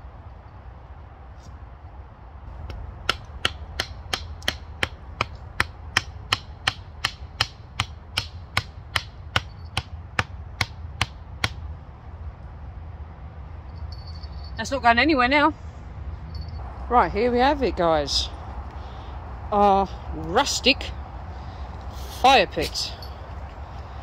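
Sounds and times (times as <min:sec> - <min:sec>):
hatchet striking wooden stake: 0:02.6 - 0:11.6.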